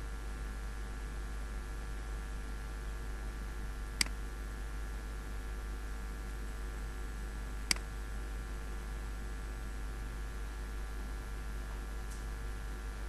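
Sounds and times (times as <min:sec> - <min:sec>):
low electrical hum: 0:00.0 - 0:13.0
computer mouse clicks: 0:07.7 - 0:07.9.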